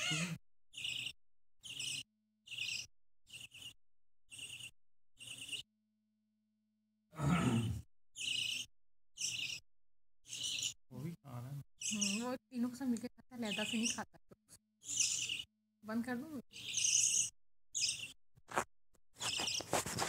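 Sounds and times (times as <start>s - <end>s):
chicks begging chirps: 8.2s - 9.6s, 10.3s - 10.8s, 13.4s - 14.1s, 14.8s - 15.5s, 19.2s - 19.9s.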